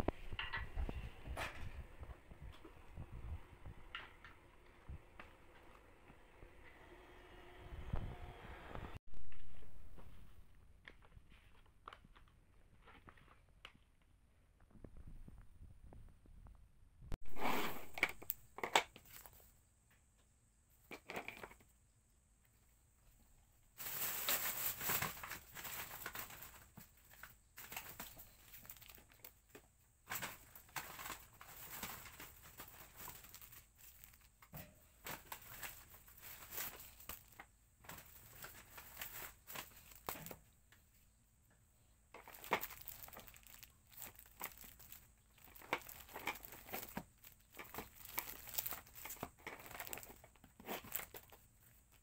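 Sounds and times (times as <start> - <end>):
packaging crinkling and rustling: 23.8 - 40.4, 42.1 - 52.0.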